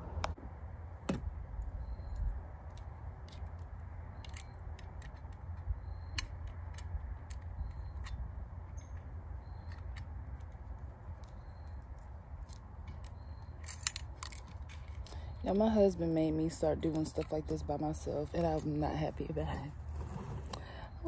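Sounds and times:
staple gun clicking and rattling: 12.9 - 15.2.

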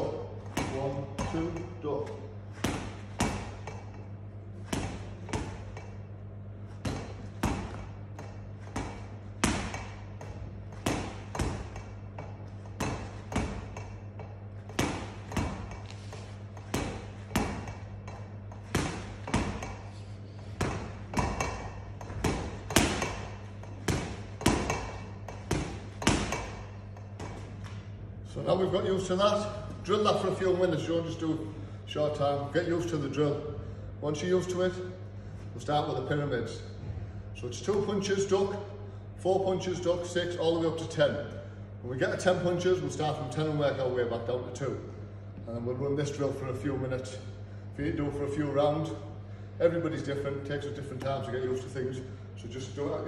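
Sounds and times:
steady low hum: 0.0 - 53.0
boxing gloves smacking speed bar: 2.6 - 4.0, 4.7 - 6.0, 6.8 - 27.8.

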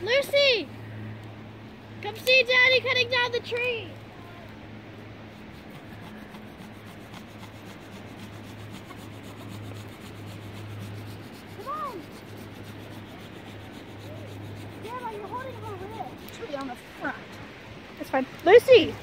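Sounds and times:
hand saw rasping through wood: 5.3 - 17.0.

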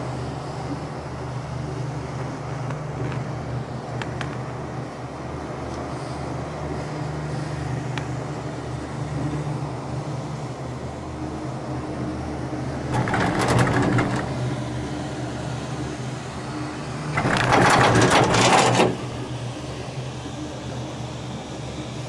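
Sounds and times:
gondola cabin clattering over rollers: 12.8 - 14.6, 17.0 - 19.4.

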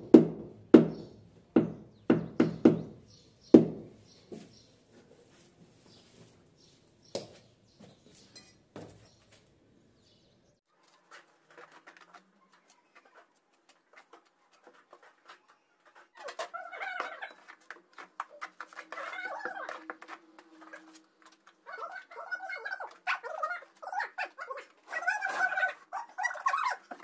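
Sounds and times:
sharp knocks and taps: 0.1 - 3.0
birds calling: 0.8 - 4.8.

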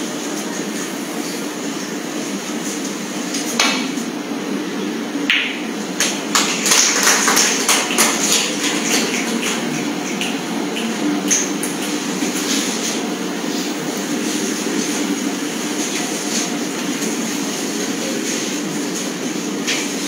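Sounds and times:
snooker balls clacking: 5.3 - 12.0.

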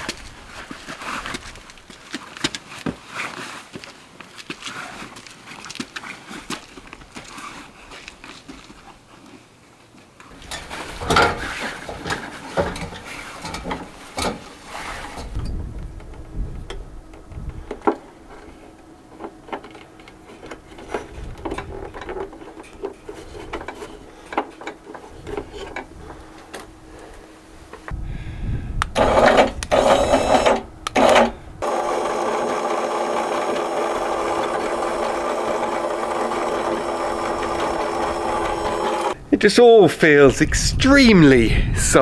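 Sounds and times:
electric winch motor running: 29.0 - 39.2.

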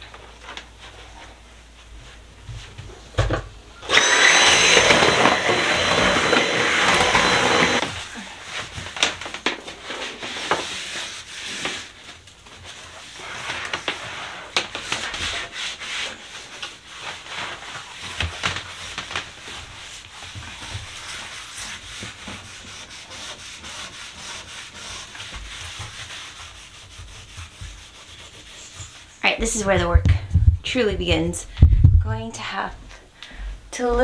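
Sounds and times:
scrubbing tile floor: 3.9 - 30.0.

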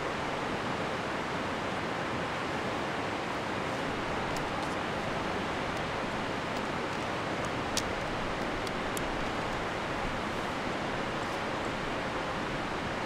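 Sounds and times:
river rapids rushing: 0.1 - 13.0
tent pole sections clicking: 4.0 - 10.0, 11.1 - 11.8.

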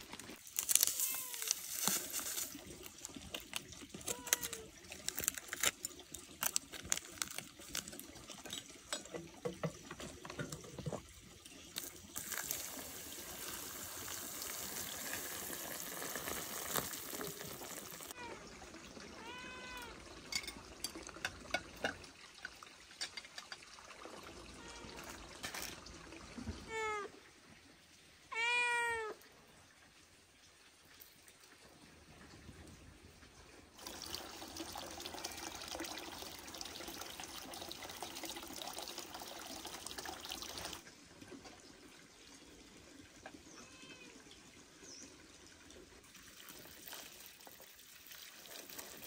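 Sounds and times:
animal cries: 28.3 - 29.2.

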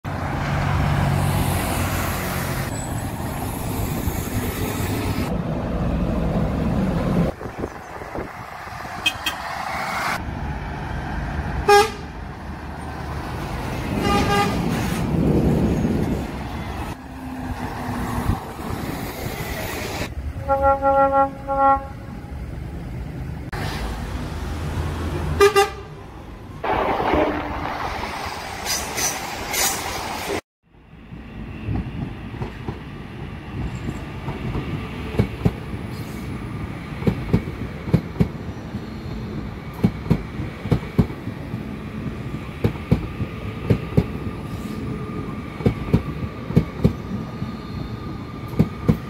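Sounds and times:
buses and lorries driving past: 0.0 - 49.0
lorry horn toots: 20.3 - 22.2, 25.4 - 25.9.

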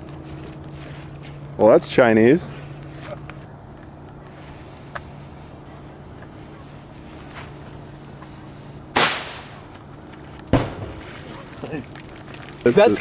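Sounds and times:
low steady hum: 0.0 - 13.0
firework shot: 8.9 - 9.6, 10.5 - 11.3.

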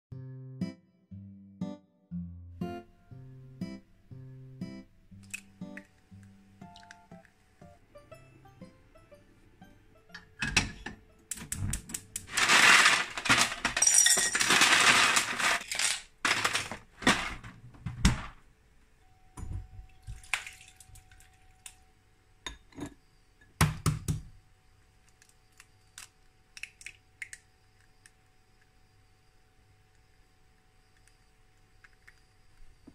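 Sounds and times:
kitchenware clinking and knocking: 10.2 - 18.4.

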